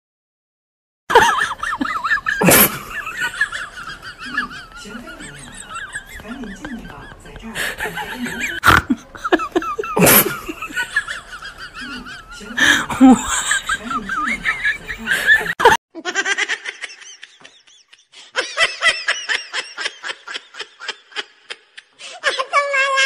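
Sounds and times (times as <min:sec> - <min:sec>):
giggling: 0:01.1 - 0:23.0
person speaking: 0:01.9 - 0:10.8, 0:11.6 - 0:15.6.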